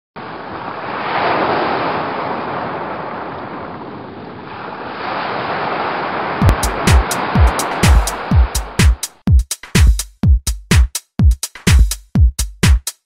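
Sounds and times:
wind on microphone: 0.2s - 7.6s
waves washing over rocks: 0.2s - 9.0s
electronic dance music: 6.4s - 13.0s.

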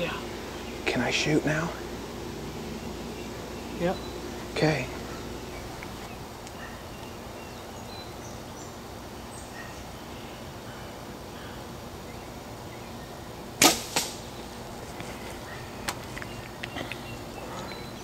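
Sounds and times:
outdoor background hiss: 0.0s - 18.0s
faint bird chirps: 14.3s - 18.0s.

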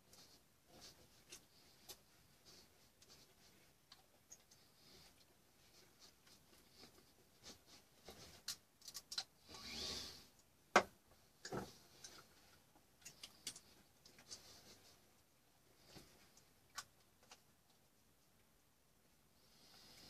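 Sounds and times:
soft hiss: 0.0s - 20.0s.

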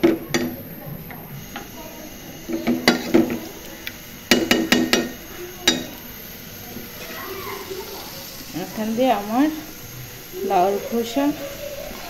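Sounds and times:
pot ringing: 0.0s - 6.2s.

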